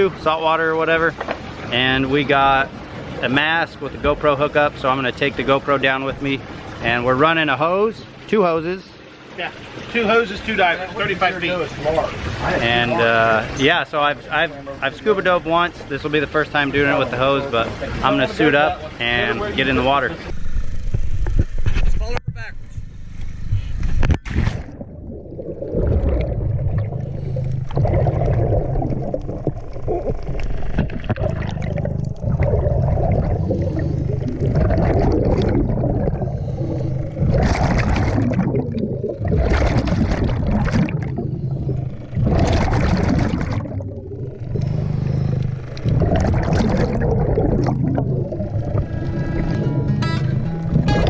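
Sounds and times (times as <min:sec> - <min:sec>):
steady low hum: 0:10.8 - 0:51.0
rushing exhaled bubbles: 0:24.3 - 0:50.0
diver breathing through regulator: 0:33.1 - 0:34.9, 0:35.6 - 0:37.8, 0:44.4 - 0:46.0.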